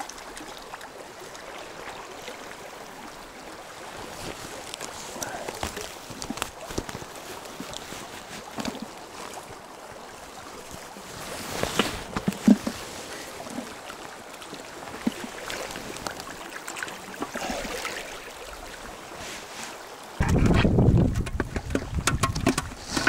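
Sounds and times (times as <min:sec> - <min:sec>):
river running over stones: 0:00.0 - 0:23.0
knocks and splashes: 0:03.9 - 0:09.6, 0:10.5 - 0:13.9, 0:14.6 - 0:18.8, 0:20.0 - 0:23.0.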